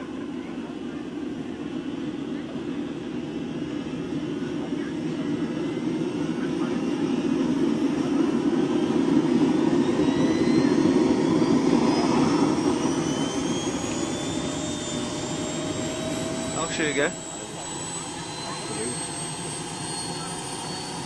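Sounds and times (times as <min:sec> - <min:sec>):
model turbine engine jet rush: 0:00.0 - 0:21.0.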